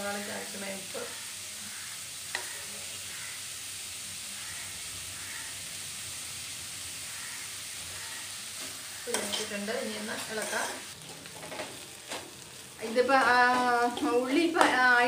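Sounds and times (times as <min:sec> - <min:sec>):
onions sizzling in oil: 0:00.0 - 0:15.0
spoon tapping pan: 0:13.0 - 0:15.0.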